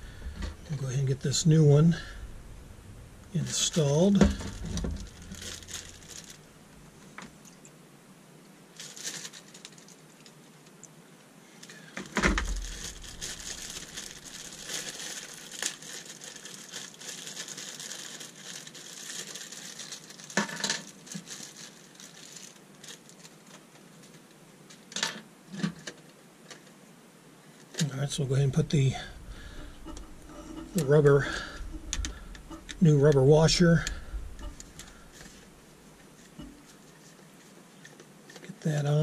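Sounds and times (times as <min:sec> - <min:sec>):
plastic packaging crinkling: 0:03.4 - 0:06.6, 0:08.8 - 0:10.3, 0:12.1 - 0:24.2, 0:27.8 - 0:39.0.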